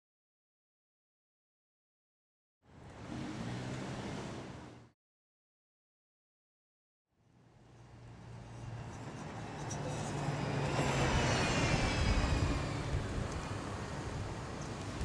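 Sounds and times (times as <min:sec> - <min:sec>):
bus engine and tyre noise: 0:02.7 - 0:05.0, 0:07.2 - 0:15.0.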